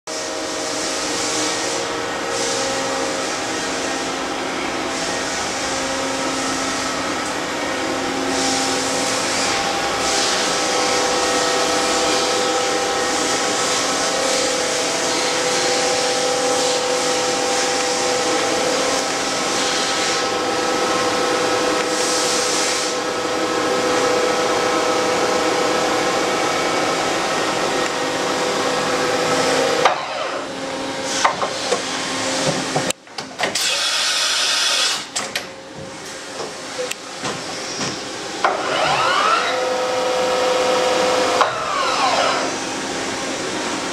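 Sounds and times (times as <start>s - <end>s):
machining center hum: 0.1s - 33.4s, 34.4s - 43.9s
machine whining tones: 36.8s - 43.9s.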